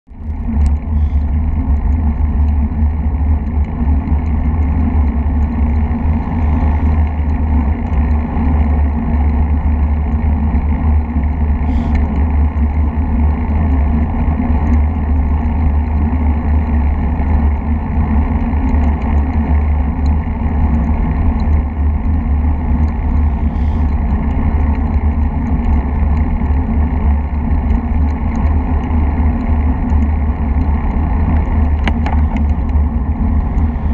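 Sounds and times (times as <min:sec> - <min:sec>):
tyre and road noise: 0:00.1 - 0:33.9
wind rumble on microphone: 0:00.1 - 0:33.9
faint clicks: 0:00.2 - 0:06.3, 0:27.5 - 0:33.9.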